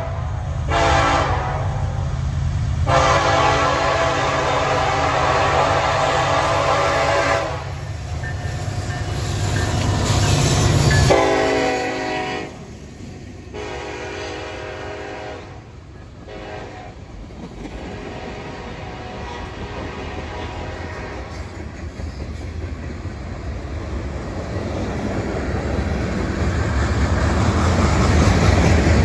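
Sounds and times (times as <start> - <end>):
locomotive horn: 0.0 - 2.0, 2.8 - 7.8, 11.0 - 12.7, 13.5 - 17.1, 17.8 - 21.5.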